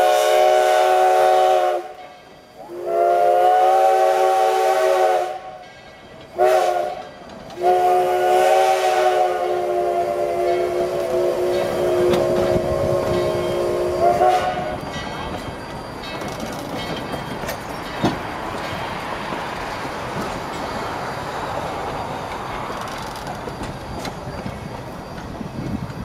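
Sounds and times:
steam locomotive whistle: 0.0s - 5.7s, 6.3s - 15.0s
train coaches rumbling on rails: 0.0s - 26.0s.

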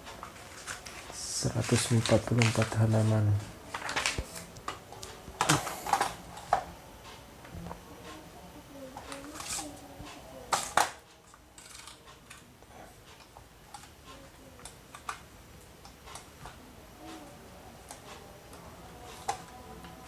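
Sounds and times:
paper rustling: 0.2s - 4.5s.

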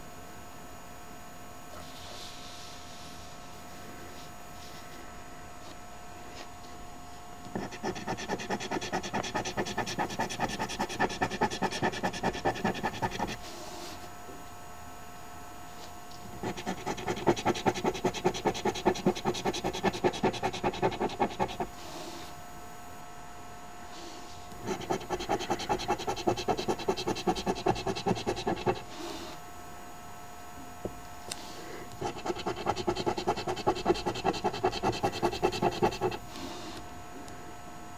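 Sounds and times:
coin scratching lottery ticket: 7.6s - 13.4s, 16.4s - 21.7s, 24.6s - 28.8s, 32.0s - 36.2s.

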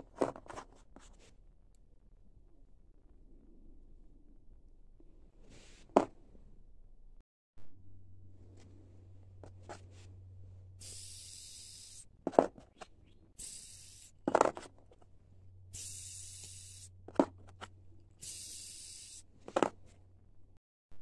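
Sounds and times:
bearing spinning with hissing whir: 8.4s - 19.8s.

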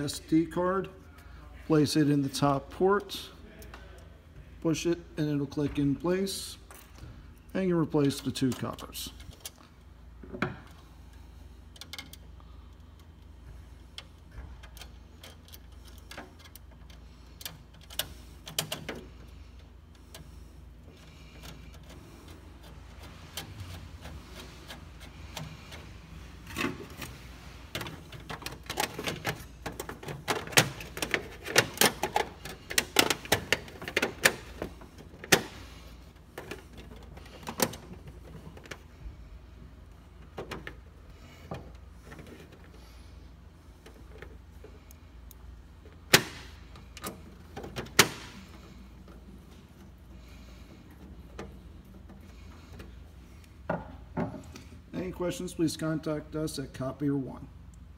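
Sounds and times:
low steady hum: 0.0s - 57.9s
copier covers clicking and knocking: 27.8s - 35.6s, 46.1s - 46.6s, 47.6s - 48.4s.

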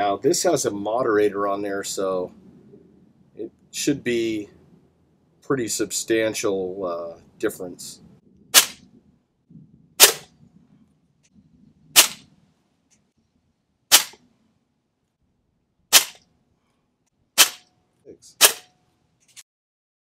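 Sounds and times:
air pistol shots: 8.5s - 8.9s, 10.0s - 10.4s, 12.0s - 12.3s, 13.9s - 14.2s, 15.9s - 16.2s, 17.4s - 17.7s, 18.4s - 18.7s.

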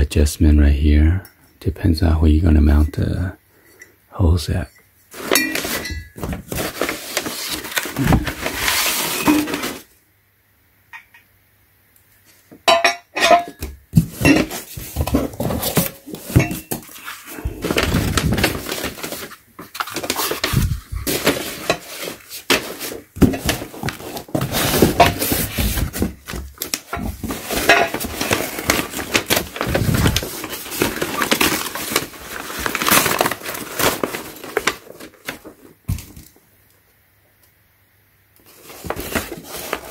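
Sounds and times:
packing paper rustling: 5.1s - 9.9s, 14.0s - 36.4s, 38.4s - 39.9s.

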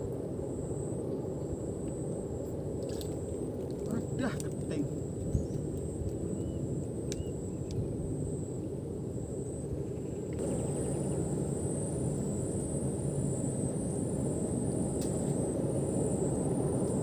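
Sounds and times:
low outdoor rumble: 0.0s - 17.0s
high-pitched whine: 5.4s - 17.0s.

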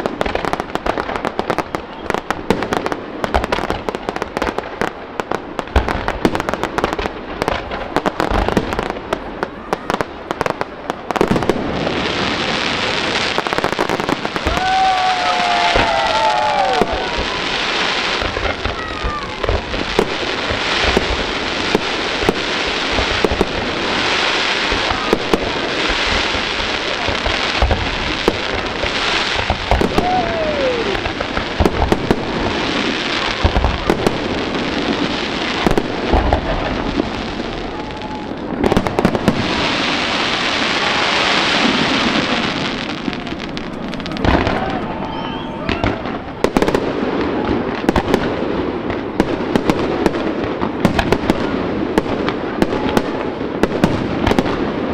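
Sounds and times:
firework bangs: 0.0s - 54.9s
fireworks crackling hiss: 0.0s - 54.9s.

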